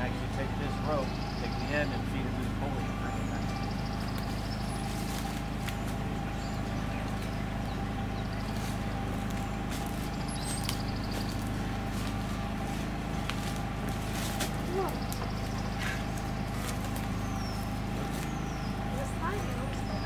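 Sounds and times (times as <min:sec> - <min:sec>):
engine running steadily: 0:00.0 - 0:20.0.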